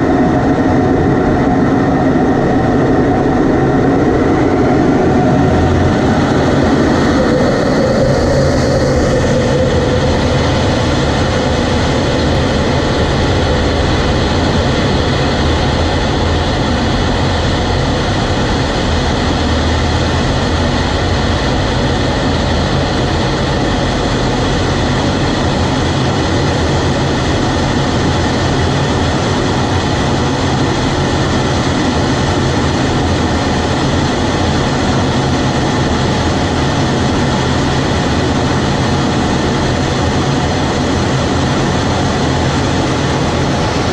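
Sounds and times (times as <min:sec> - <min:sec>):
air rushing over airframe: 0:00.0 - 0:43.9
jet engine at takeoff power: 0:00.0 - 0:43.9.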